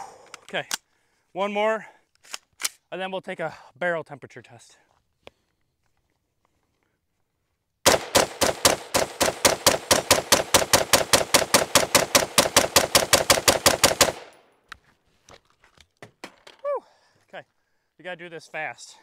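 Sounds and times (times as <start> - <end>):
rifle semi-automatic shots: 7.9 - 14.4.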